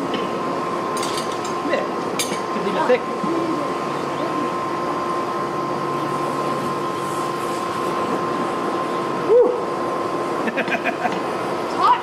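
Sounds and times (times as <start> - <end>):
forge blower air rush: 0.0 - 12.0
motor whine: 2.6 - 12.0.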